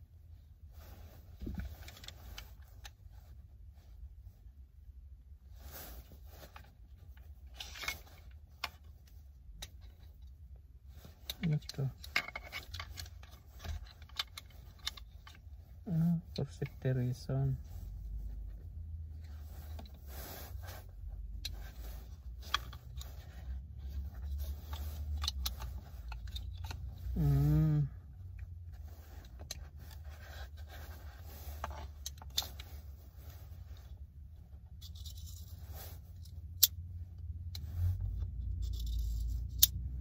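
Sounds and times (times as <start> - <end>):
objects clicking and rattling: 11.2 - 15.4
low vehicle cabin rumble: 12.8 - 34.9
man humming: 15.9 - 16.4, 27.1 - 28.0.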